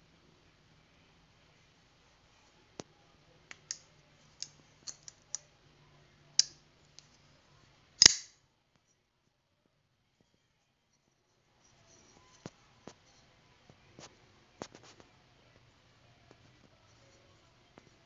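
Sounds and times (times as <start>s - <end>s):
small metallic knife clicks: 4.4s - 5.4s, 8.0s - 8.3s
knife blade snapping open: 8.0s - 8.3s.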